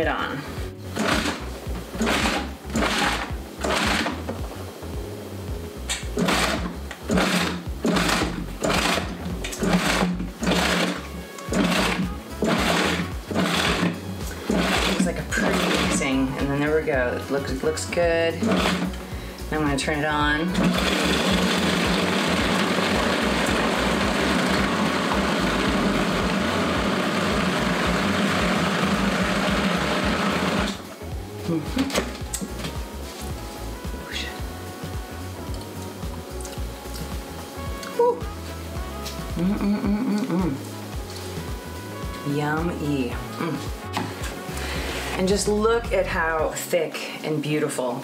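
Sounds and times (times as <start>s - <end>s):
food mixer pulsing: 1.0s - 4.3s, 6.2s - 16.2s, 18.4s - 19.0s, 20.5s - 30.9s.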